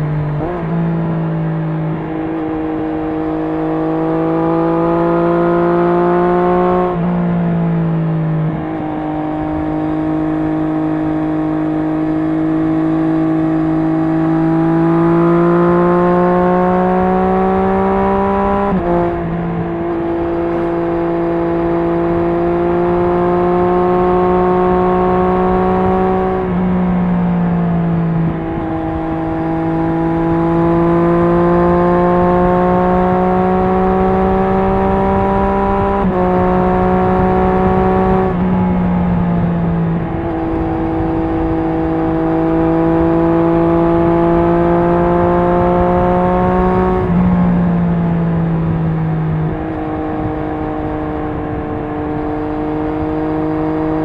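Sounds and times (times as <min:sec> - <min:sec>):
motorcycle engine accelerating: 0:00.0 - 0:54.0
wind and road noise: 0:00.0 - 0:54.0.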